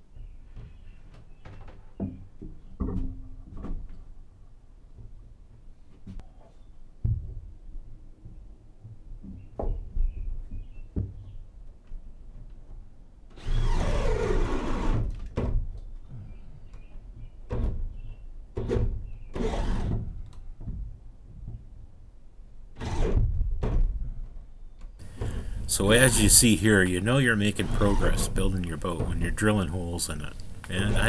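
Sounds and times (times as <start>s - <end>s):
knocks and thumps: 0.5s - 4.1s, 7.0s - 7.6s, 25.0s - 25.7s, 27.6s - 29.6s
cordless drill boring wood: 13.4s - 15.0s, 19.4s - 20.0s, 27.5s - 28.4s.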